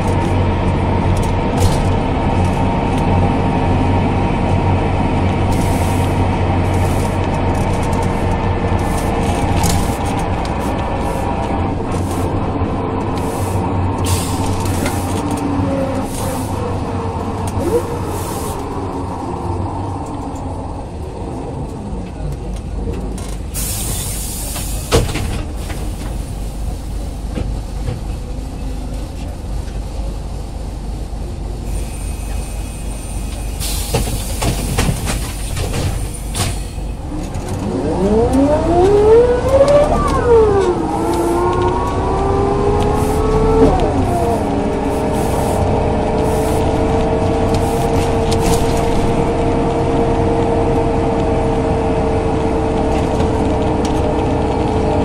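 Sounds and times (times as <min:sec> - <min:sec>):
bus engine and gearbox whine: 0:00.0 - 0:55.0
compressed-air hiss: 0:44.3 - 0:45.6, 0:46.2 - 0:46.7.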